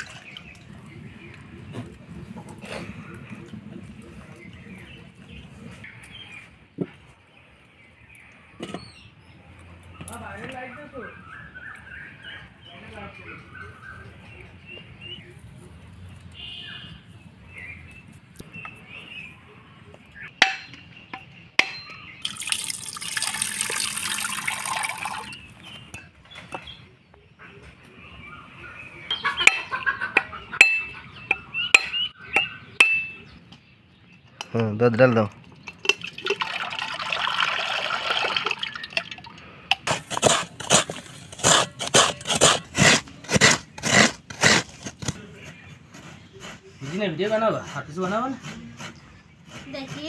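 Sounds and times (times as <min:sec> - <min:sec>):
water pouring into metal pot: 0:22.2 - 0:25.4, 0:35.6 - 0:39.4
coconut scraper rasping: 0:39.8 - 0:50.0.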